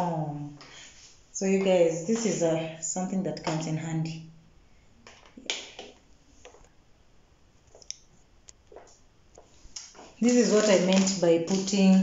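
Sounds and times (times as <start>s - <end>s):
plastic packets set on countertop: 8.7s - 12.0s.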